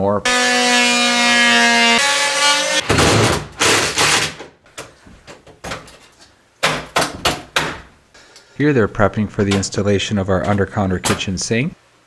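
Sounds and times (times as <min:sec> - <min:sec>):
multi-tool whining: 0:00.2 - 0:02.8.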